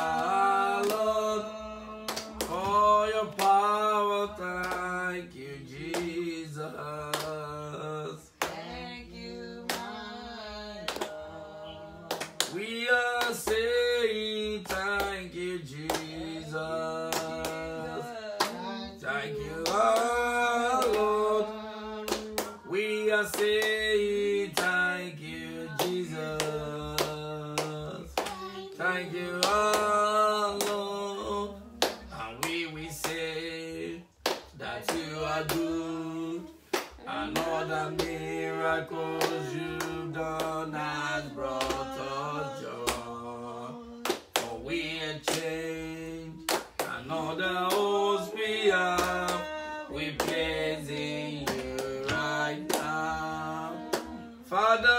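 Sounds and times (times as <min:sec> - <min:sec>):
hands clapping: 0:00.0 - 0:01.1, 0:02.0 - 0:03.7, 0:04.6 - 0:05.0, 0:05.8 - 0:06.2, 0:07.1 - 0:07.4, 0:09.7 - 0:09.9, 0:10.9 - 0:13.8, 0:14.6 - 0:15.2, 0:15.8 - 0:16.2, 0:17.1 - 0:17.7, 0:18.4 - 0:18.6, 0:19.6 - 0:20.2, 0:20.8 - 0:21.1, 0:22.1 - 0:23.9, 0:24.5 - 0:24.8, 0:25.7 - 0:28.7, 0:29.3 - 0:30.0, 0:30.6 - 0:30.9, 0:31.8 - 0:33.2, 0:34.2 - 0:35.7, 0:36.7 - 0:38.3, 0:39.2 - 0:40.6, 0:41.6 - 0:41.9, 0:42.9 - 0:43.1, 0:44.0 - 0:44.6, 0:45.3 - 0:45.6, 0:46.4 - 0:48.0, 0:48.9 - 0:54.2
man singing unaccompanied: 0:00.0 - 0:08.4, 0:09.0 - 0:54.9.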